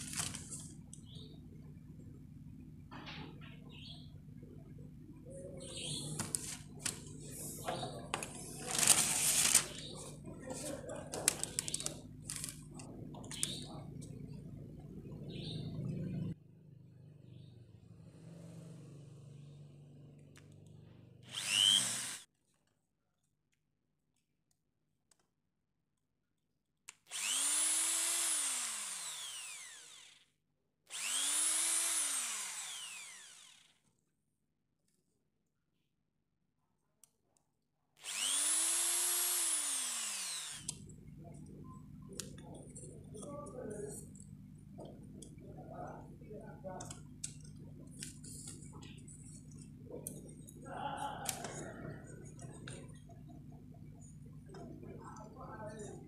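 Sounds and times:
electric drill boring into wood: 21.2 - 22.3, 27.1 - 30.3, 30.9 - 33.9, 38.0 - 40.8.

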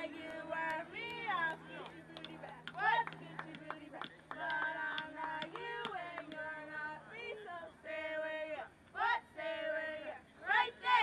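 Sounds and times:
girls singing a chant: 2.8 - 11.0.

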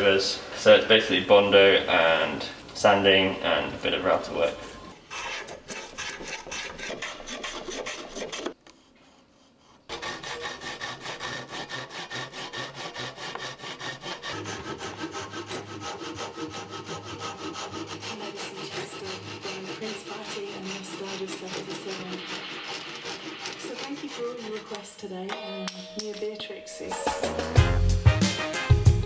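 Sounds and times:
blade rasping on wood: 5.0 - 25.3.

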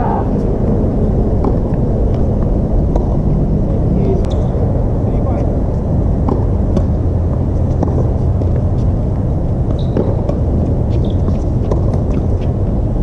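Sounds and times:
steady low rumble: 0.0 - 13.0
shoe squeaks on hard court: 4.3 - 4.5, 9.7 - 10.3, 10.9 - 11.8.

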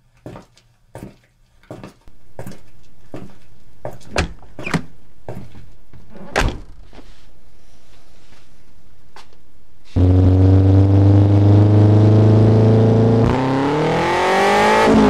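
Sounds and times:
steady hum: 2.1 - 13.4.

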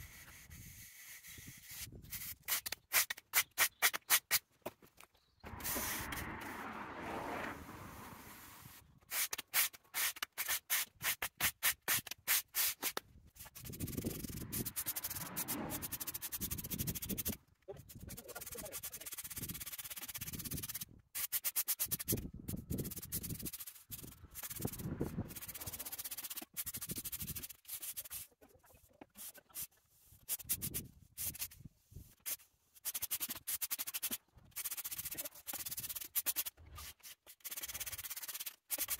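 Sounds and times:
push broom sweeping sand on paving: 5.5 - 17.4, 22.8 - 28.3.

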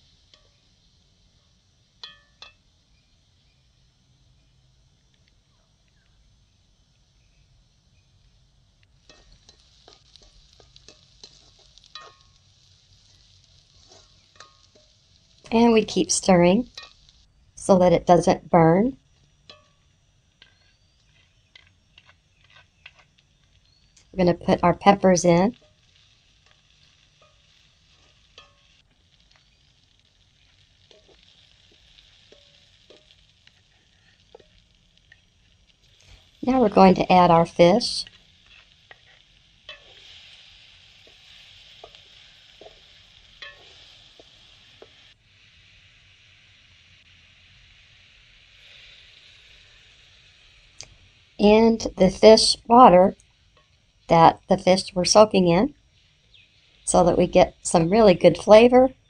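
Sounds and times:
faint sizzle of frying: 0.0 - 59.0
ladle tapping and scraping pot: 9.1 - 12.3, 20.4 - 23.1, 38.0 - 40.1, 43.4 - 44.9.

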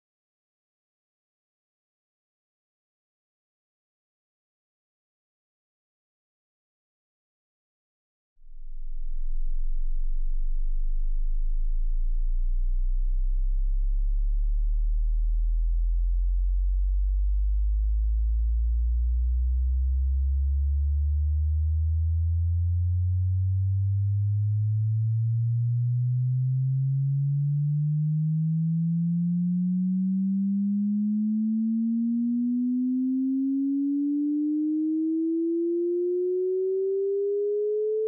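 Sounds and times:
sine tone sweeping upward: 24.2 - 38.0.

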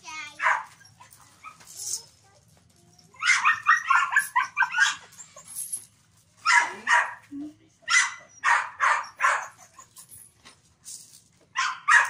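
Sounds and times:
dog barking and yelping: 0.3 - 1.7, 3.1 - 5.6, 6.4 - 7.3, 7.9 - 10.1, 11.6 - 12.0.

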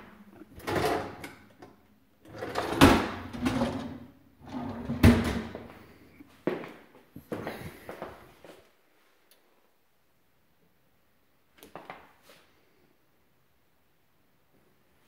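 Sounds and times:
drawer runners rumbling: 2.3 - 5.5.

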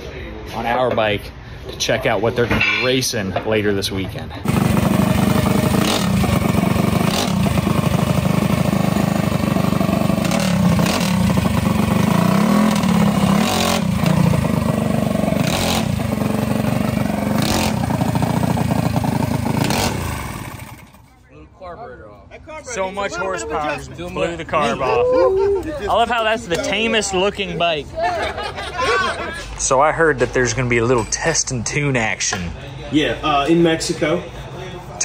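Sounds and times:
mini bike engine revving: 4.4 - 21.0
onlookers talking: 21.0 - 30.8.

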